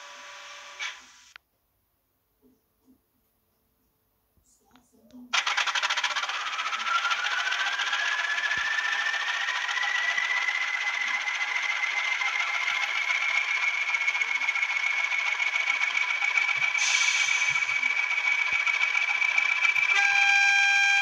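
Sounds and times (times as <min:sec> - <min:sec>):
model diesel engine clattering: 0:05.4 - 0:20.7
turbocharger whistle: 0:05.4 - 0:21.0.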